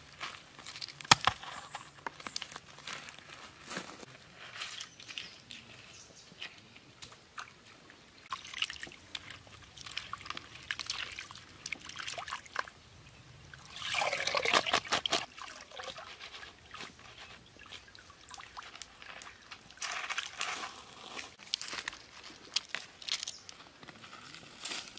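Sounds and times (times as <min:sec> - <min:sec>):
stream water trickling: 0:04.7 - 0:23.5
water pouring and sloshing: 0:07.1 - 0:22.0.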